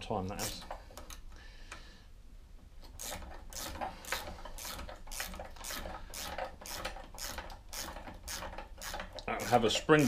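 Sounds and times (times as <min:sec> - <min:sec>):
hand tool rasping strokes: 0:03.0 - 0:10.0.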